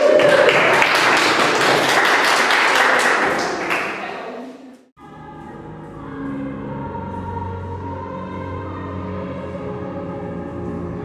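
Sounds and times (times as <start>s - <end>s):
people clapping and cheering: 0.0s - 4.2s.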